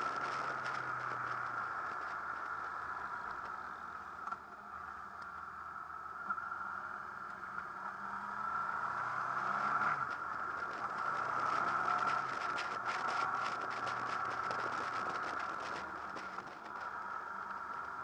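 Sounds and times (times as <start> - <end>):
motorcycle engine running: 8.8 - 18.0.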